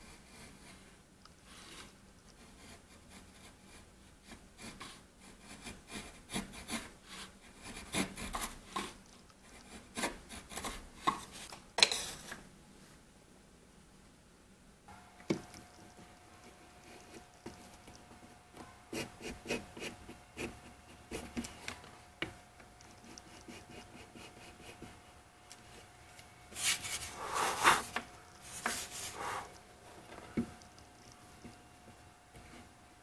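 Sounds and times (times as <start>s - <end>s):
faint steady hum: 0.0s - 33.0s
wood scraping on wood: 26.5s - 31.6s.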